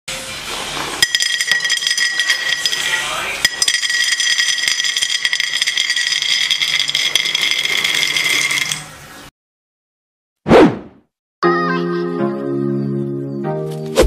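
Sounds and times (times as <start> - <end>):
almonds rattling into ceramic bowl: 1.0 - 9.0.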